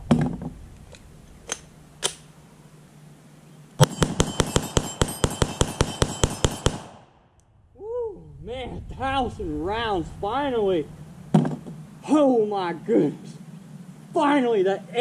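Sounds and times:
gun handling clicks: 0:00.8 - 0:02.3
rapid pistol gunshots: 0:03.8 - 0:07.2.

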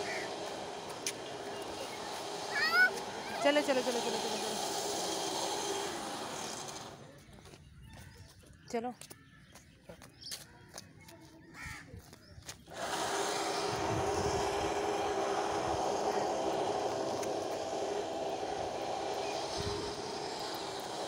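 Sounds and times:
loud mechanical drone: 0:00.0 - 0:07.0, 0:12.7 - 0:21.0.

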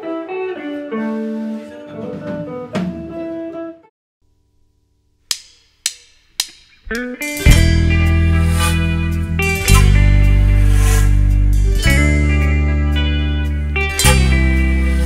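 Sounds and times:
drumsticks clicked together: 0:05.3 - 0:07.2
plucked string melody: 0:06.9 - 0:15.0.

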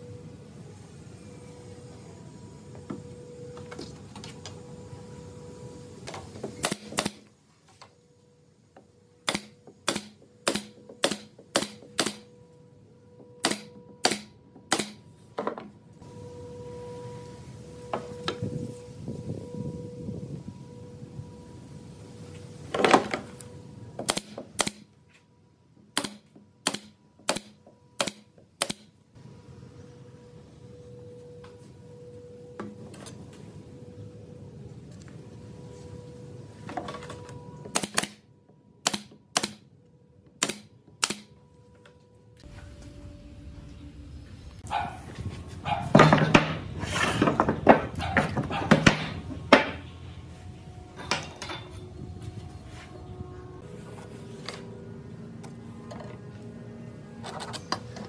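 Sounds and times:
brad nailer firing: 0:06.6 - 0:07.3, 0:09.2 - 0:12.3, 0:13.4 - 0:15.0, 0:24.0 - 0:24.9, 0:25.9 - 0:28.9, 0:37.7 - 0:38.2, 0:38.8 - 0:39.6.

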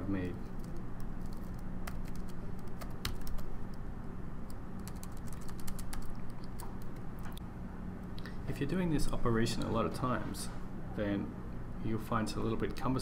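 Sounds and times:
computer keyboard typing: 0:00.6 - 0:03.8, 0:04.5 - 0:07.4.

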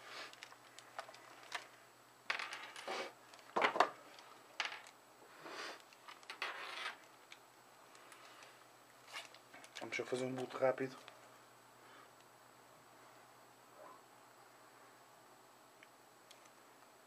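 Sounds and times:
rustling scrapes: 0:09.0 - 0:09.4.

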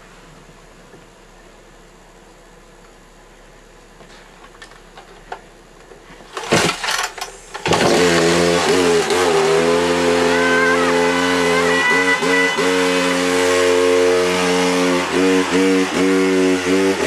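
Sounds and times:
chainsaw engine running: 0:06.5 - 0:17.0.

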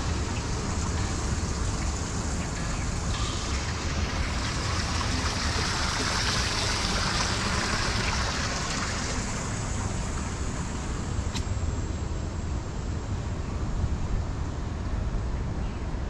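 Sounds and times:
running water hissing: 0:00.0 - 0:11.4.

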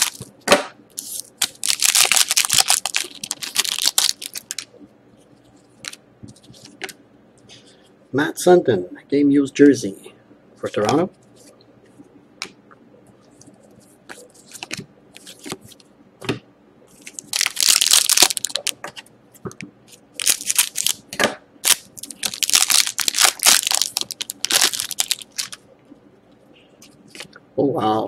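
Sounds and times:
foil wrapper crinkling and tearing: 0:00.0 - 0:00.3, 0:01.0 - 0:04.7, 0:17.0 - 0:18.8, 0:20.2 - 0:21.0, 0:21.6 - 0:25.6.

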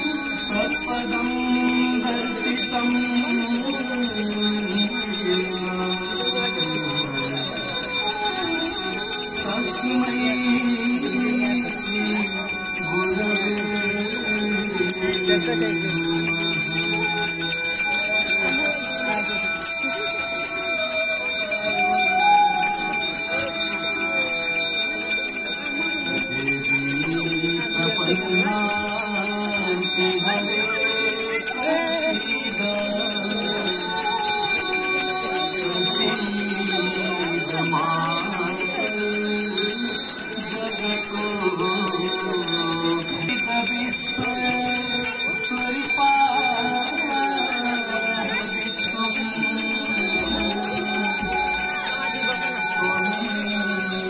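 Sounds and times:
hand bells ringing: 0:00.0 - 0:54.0
slow devotional melody: 0:00.0 - 0:54.0.

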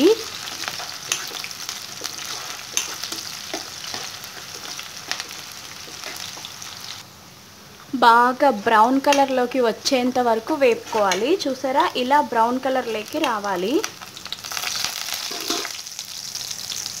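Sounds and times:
onions sizzling in oil: 0:00.0 - 0:07.2, 0:08.0 - 0:17.0
spoon scraping against a pan: 0:00.3 - 0:06.9, 0:15.1 - 0:15.8.

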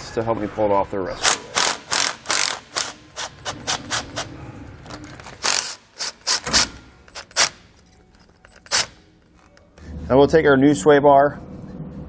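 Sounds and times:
hand ratchet pawl clicking: 0:01.2 - 0:04.3, 0:04.9 - 0:07.6, 0:08.2 - 0:09.0.

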